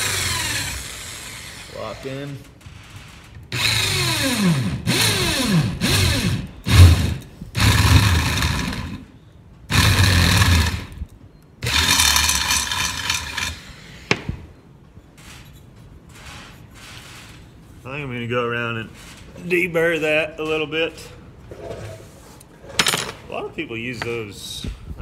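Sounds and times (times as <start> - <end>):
electric drill boring through metal: 0.0 - 9.1, 9.7 - 11.0, 11.6 - 14.2.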